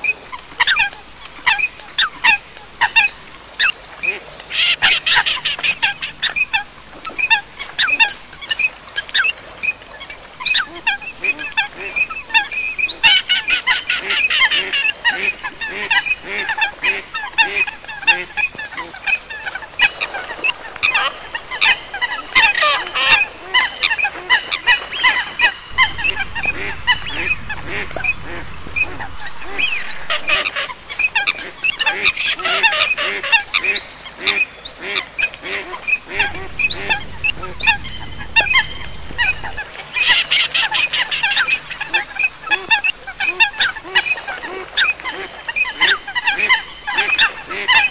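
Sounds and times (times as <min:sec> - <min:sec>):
waterbirds calling and honking: 0:00.0 - 0:47.9
low repeated bird notes: 0:20.4 - 0:43.8.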